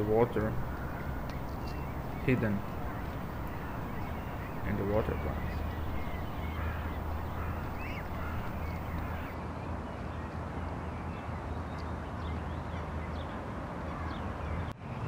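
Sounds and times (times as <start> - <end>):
faint bird calls: 0.0 - 9.4
low microphone rumble: 0.0 - 9.4.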